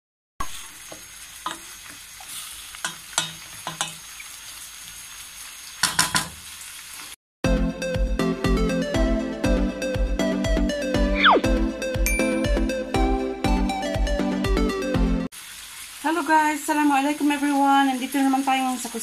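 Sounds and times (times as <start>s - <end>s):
vegetables sizzling in a pan: 0.4s - 7.2s, 15.3s - 19.0s
music: 7.4s - 15.3s.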